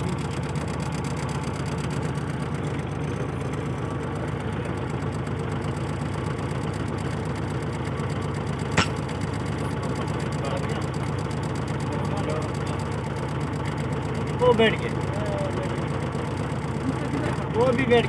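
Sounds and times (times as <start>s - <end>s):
vehicle engine idling: 0.0s - 18.0s
sharp click: 8.7s - 9.1s.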